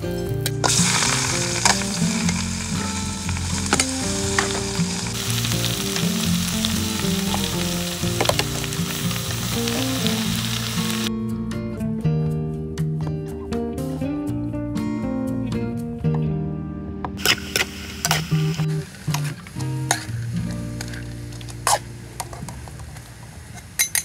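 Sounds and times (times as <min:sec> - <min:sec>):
vegetables sizzling in a wok: 0:00.0 - 0:11.1, 0:17.2 - 0:23.8
background music: 0:00.0 - 0:22.4.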